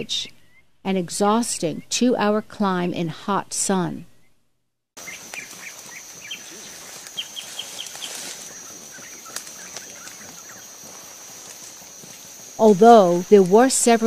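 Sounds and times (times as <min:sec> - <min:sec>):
high insect buzz: 0:05.0 - 0:14.0
small birds chirping: 0:05.0 - 0:14.0.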